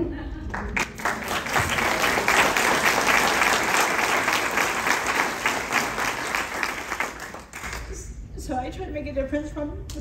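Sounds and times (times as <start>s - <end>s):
audience applauding: 0.5s - 8.0s.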